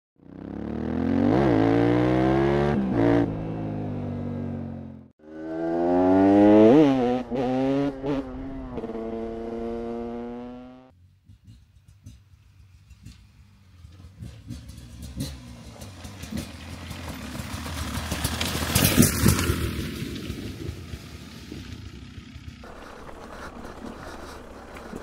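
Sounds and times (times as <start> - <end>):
two-stroke engine revving: 0.2 - 10.9.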